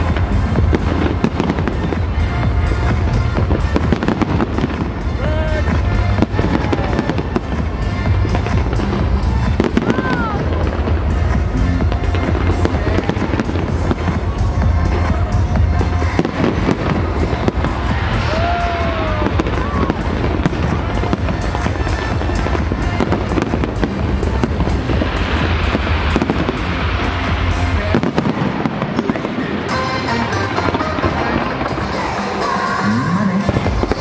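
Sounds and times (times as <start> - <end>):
fireworks crackling and popping: 0.0 - 34.0
music with low bass: 0.0 - 34.0.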